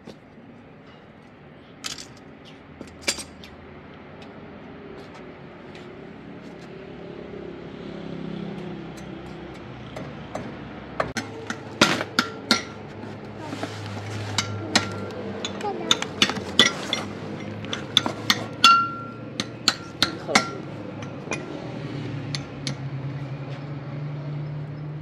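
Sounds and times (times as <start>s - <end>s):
knocks and clinks of hard objects: 1.8s - 3.5s, 8.9s - 22.9s
ringing knocks: 14.4s - 21.6s.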